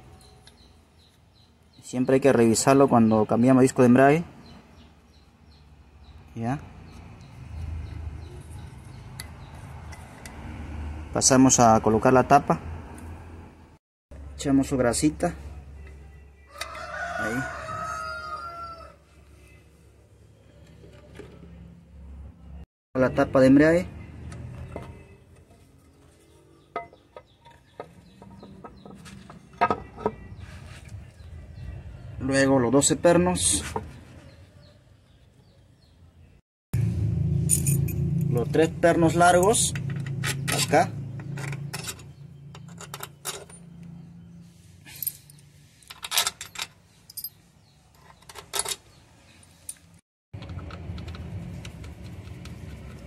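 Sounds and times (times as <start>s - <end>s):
metal bolts clinking: 37.5s - 38.4s, 39.2s - 44.0s, 44.9s - 47.4s, 48.0s - 49.0s.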